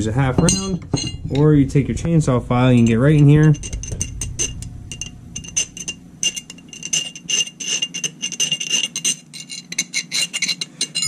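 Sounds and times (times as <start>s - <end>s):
axe head ringing: 0.2s - 11.0s
file scraping on steel: 5.6s - 11.0s.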